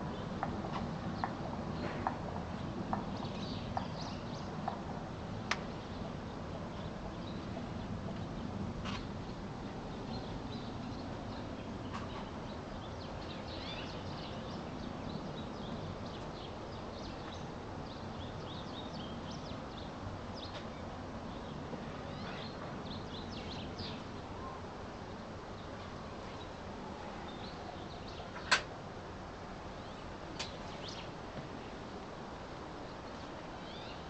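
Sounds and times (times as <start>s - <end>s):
low background noise: 0.0s - 34.0s
small birds chirping: 1.2s - 4.8s, 5.5s - 24.6s, 29.8s - 31.2s.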